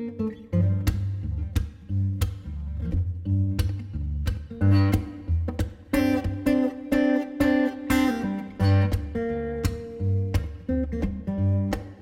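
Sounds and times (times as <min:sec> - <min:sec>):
acoustic guitar music with beat: 0:00.0 - 0:12.0.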